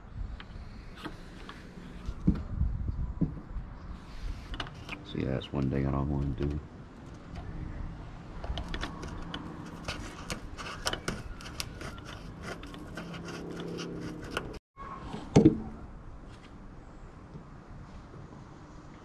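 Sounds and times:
small metallic clicks and scrapes: 8.4 - 14.6.

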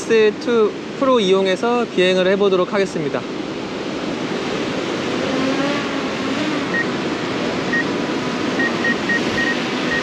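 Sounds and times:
surf: 0.0 - 10.0
wind: 0.0 - 10.0
drone propellers buzzing: 4.2 - 10.0
short high electronic beeps: 8.6 - 10.0.

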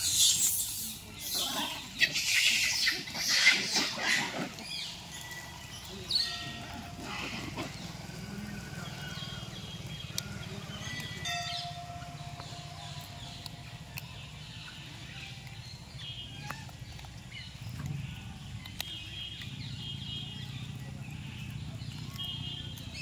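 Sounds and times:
monkeys shrieking: 0.0 - 5.0, 6.1 - 9.5
monkey calls: 0.0 - 15.6
low steady hum: 3.0 - 23.0.

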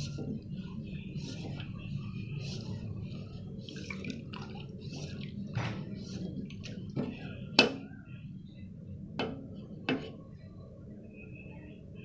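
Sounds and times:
liquid swishing: 0.0 - 7.5.

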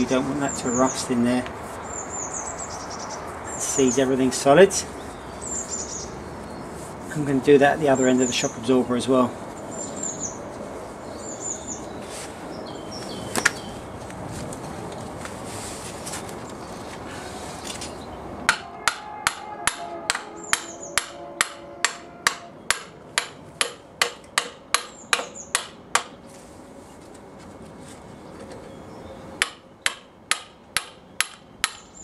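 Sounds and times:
birds chirping: 0.0 - 15.0, 16.1 - 23.6, 24.8 - 26.3, 28.0 - 30.0
hammer blows with metallic ring: 18.5 - 25.8.

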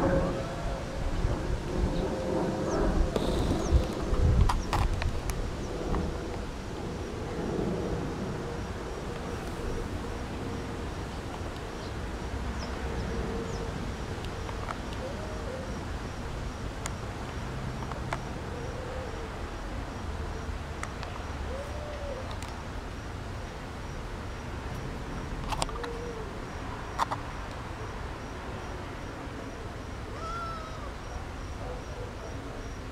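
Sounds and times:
faint constant hum: 0.0 - 32.9.

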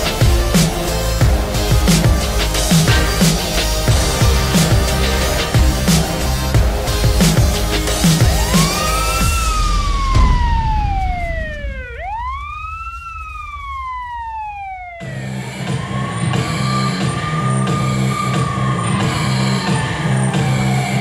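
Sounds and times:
electronic music with pulsing beat: 0.0 - 21.0
wailing siren: 8.2 - 18.6.

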